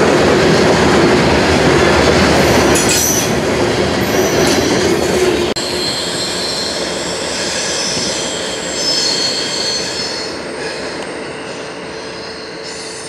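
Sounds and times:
train wheels rumbling on rails: 0.0s - 13.0s
high-pitched wheel squeal: 5.6s - 13.0s.

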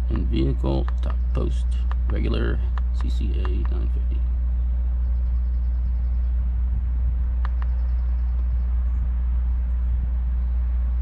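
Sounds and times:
low mechanical hum: 0.0s - 11.0s
faint click: 7.4s - 7.8s.

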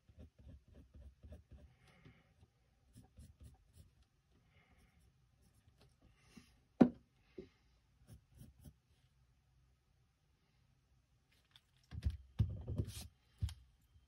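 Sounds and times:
pencil scratching on paper: 0.0s - 1.8s, 2.9s - 4.0s, 8.0s - 8.8s.

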